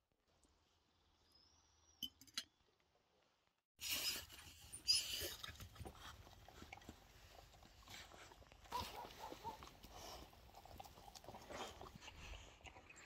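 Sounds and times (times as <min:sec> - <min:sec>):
dog eating: 0:05.3 - 0:13.0.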